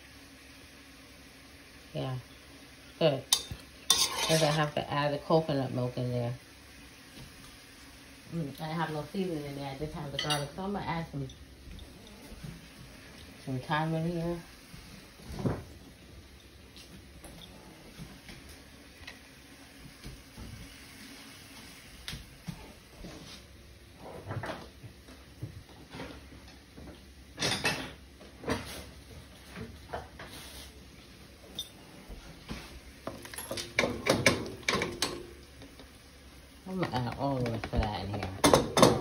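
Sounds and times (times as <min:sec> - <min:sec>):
knife scraping cutting board: 0:03.9 - 0:04.6
kitchen knocks and clatter: 0:25.4 - 0:28.7, 0:33.0 - 0:35.3, 0:36.8 - 0:39.0.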